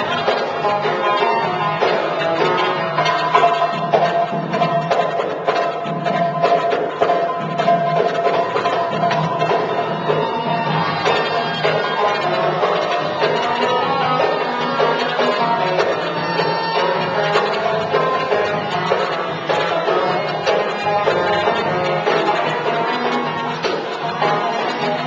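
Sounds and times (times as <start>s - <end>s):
goblet drum rhythm: 0.0s - 25.0s
oud melody: 0.0s - 25.0s.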